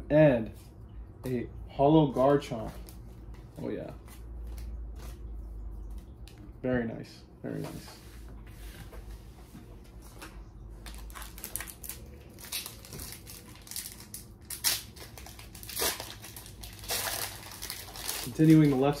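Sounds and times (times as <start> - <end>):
foil wrapper crinkling: 10.8 - 19.0.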